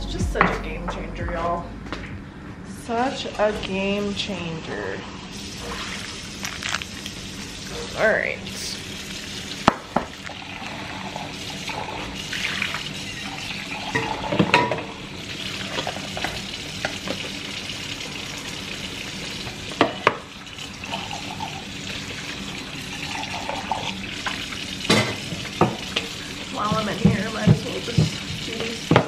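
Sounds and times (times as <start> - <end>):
kitchen utensils clinking and knocking: 13.1 - 14.9, 26.5 - 29.0.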